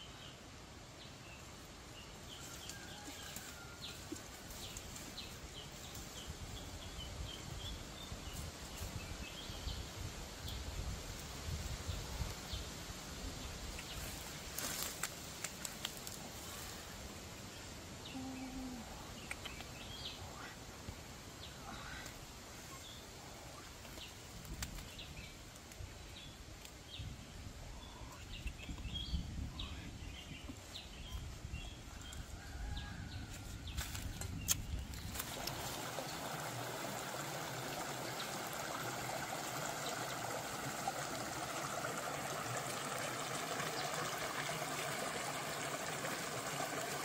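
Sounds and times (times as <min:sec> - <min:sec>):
small birds chirping: 0:17.6 - 0:20.7, 0:21.4 - 0:32.3.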